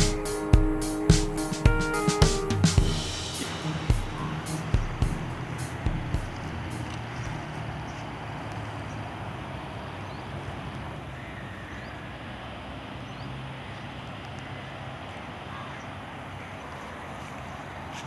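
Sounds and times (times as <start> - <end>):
low engine drone: 0.0 - 11.2
highway traffic rushing: 0.0 - 18.0.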